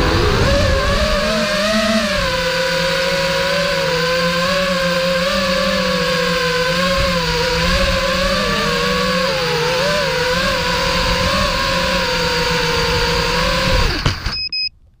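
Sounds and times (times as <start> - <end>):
quadcopter motors whining: 0.0 - 14.5
high electronic beeps: 14.3 - 14.7.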